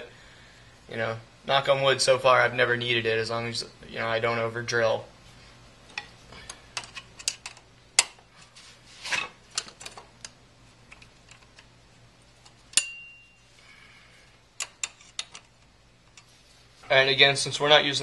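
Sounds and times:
metallic clink with ring: 12.8s - 13.5s.

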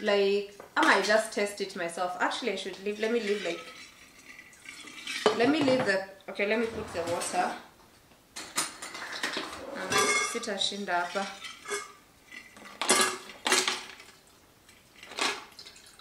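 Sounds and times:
water pouring: 3.2s - 5.3s, 13.9s - 16.0s.

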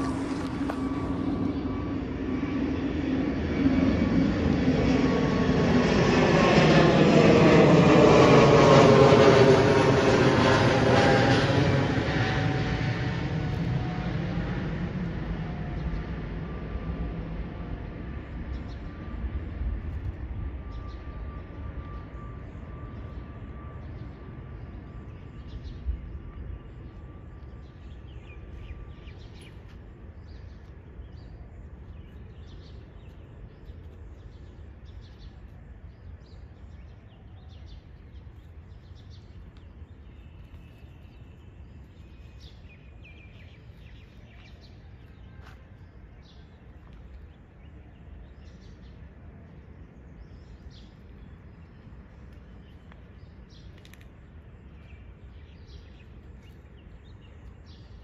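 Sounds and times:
small birds chirping: 21.8s - 58.0s.

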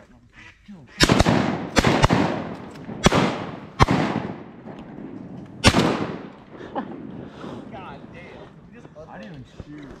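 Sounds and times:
shotgun blasts with echo: 1.0s - 7.3s.

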